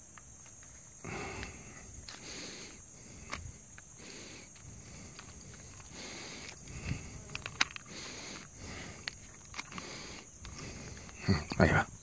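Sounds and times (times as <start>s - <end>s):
insects chirring: 0.0s - 12.0s
soft handling rustles: 3.2s - 12.0s.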